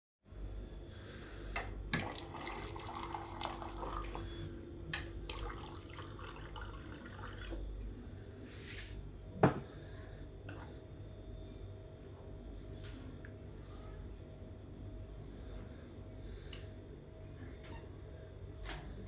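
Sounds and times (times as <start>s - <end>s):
water running into a glass: 2.0s - 4.3s, 5.2s - 7.7s
glass set down on wooden table: 9.4s - 9.7s.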